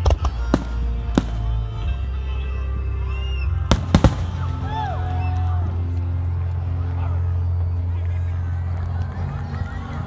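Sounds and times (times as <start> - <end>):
background music: 0.0 - 10.0
fireworks bangs: 3.7 - 4.6.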